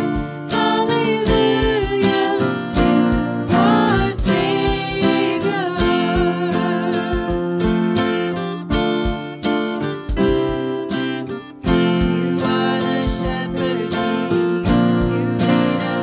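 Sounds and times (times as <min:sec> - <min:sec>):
woman singing a worship song: 0:00.0 - 0:07.8, 0:11.7 - 0:16.0
acoustic guitar strumming: 0:00.0 - 0:16.0.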